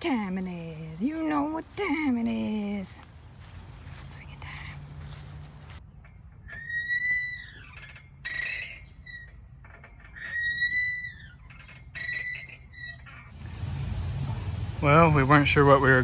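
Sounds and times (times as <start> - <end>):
swing chain squeaking: 5.8 - 13.4.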